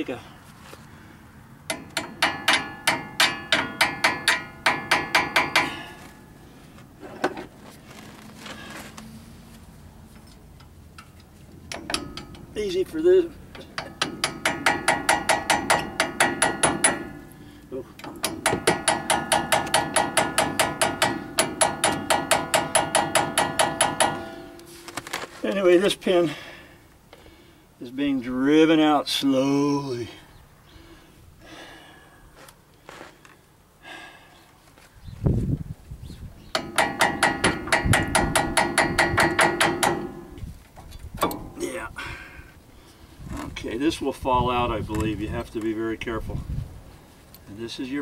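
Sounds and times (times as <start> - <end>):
hammer striking metal: 1.7 - 5.9, 11.7 - 12.5, 13.7 - 17.3, 18.0 - 24.7, 36.6 - 40.4.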